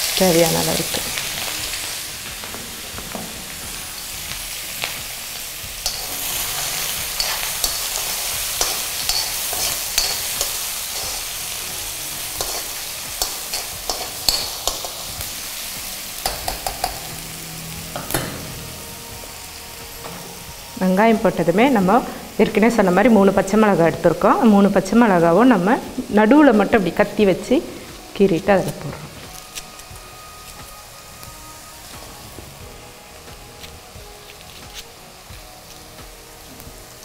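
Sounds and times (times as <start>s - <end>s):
onions sizzling in hot oil: 0.0s - 37.0s
spatula scraping a pan: 5.8s - 11.4s.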